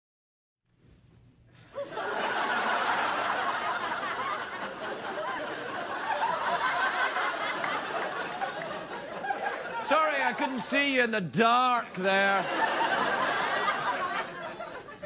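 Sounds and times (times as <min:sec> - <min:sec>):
audience laughing and cheering: 0:01.7 - 0:11.0, 0:11.7 - 0:15.0.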